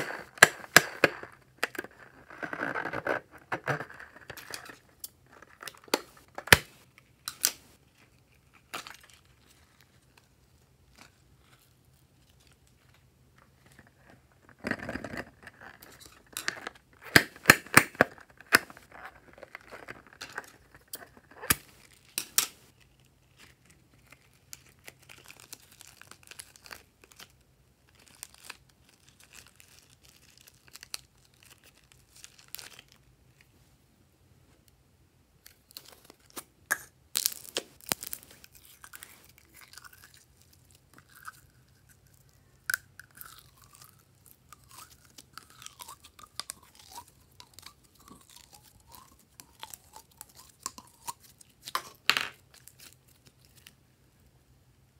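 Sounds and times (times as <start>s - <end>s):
plastic wrapping crinkling: 18.4s - 33.0s, 37.2s - 40.8s.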